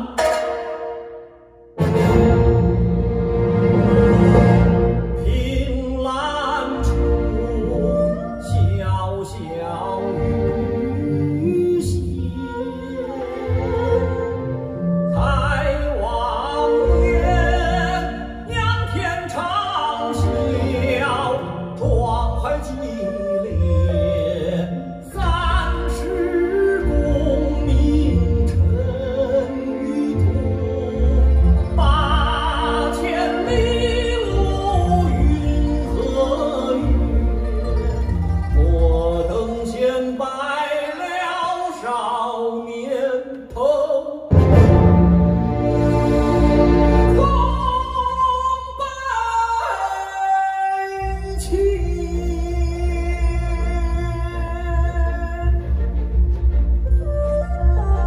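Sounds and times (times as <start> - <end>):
instrumental accompaniment: 0.0 - 8.8, 44.3 - 48.2, 51.8 - 58.0.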